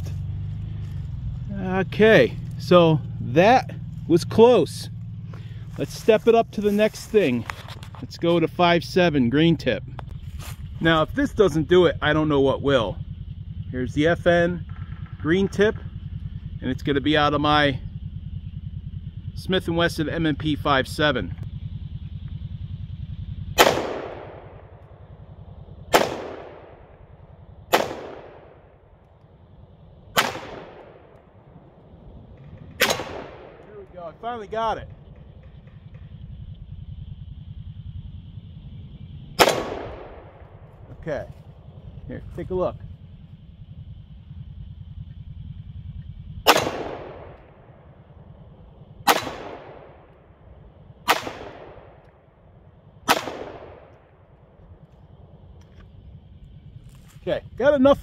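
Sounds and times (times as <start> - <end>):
pistol shots: 23.6 - 24.8, 25.9 - 27.0, 27.7 - 28.8, 30.1 - 31.1, 32.6 - 33.6, 39.4 - 40.6, 46.4 - 47.5, 49.0 - 50.1, 51.0 - 52.0, 53.0 - 54.1.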